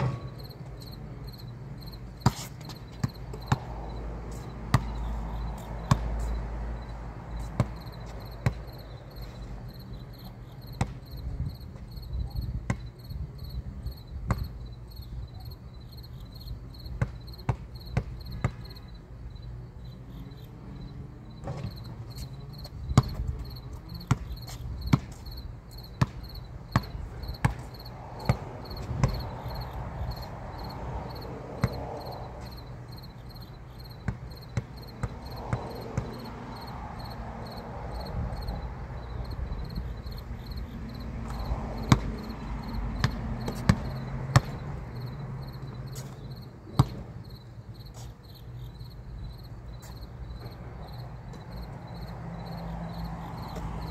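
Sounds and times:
basketball bouncing on concrete: 0:00.0 - 0:09.8, 0:10.7 - 0:13.0, 0:14.2 - 0:14.6, 0:16.9 - 0:18.8, 0:21.4 - 0:33.3, 0:33.9 - 0:38.6, 0:39.6 - 0:47.2, 0:52.7 - 0:53.9
insects trilling: 0:23.4 - 0:46.4.

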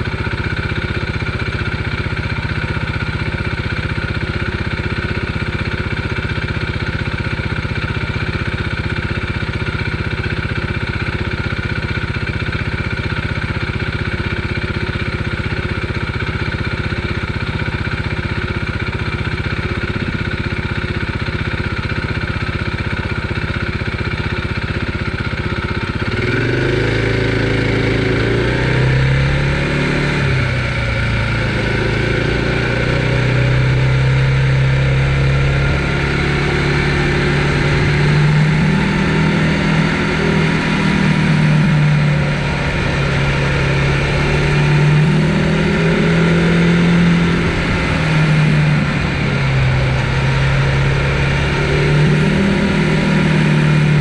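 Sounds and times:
louder motor changing pitch: 0:31.4 - 0:54.0.

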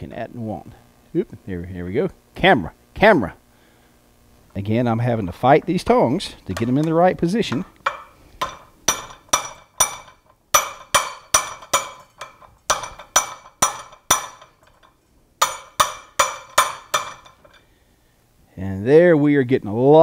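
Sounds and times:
hammer striking hot steel: 0:06.4 - 0:17.6.

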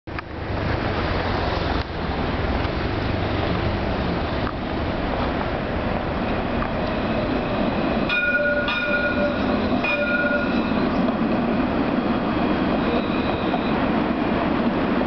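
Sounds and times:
cars driving past: 0:00.2 - 0:14.1
tram high tone: 0:06.7 - 0:14.4.

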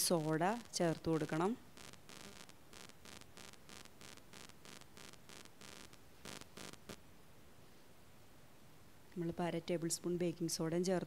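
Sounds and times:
faint scratching ticks: 0:00.0 - 0:07.0.

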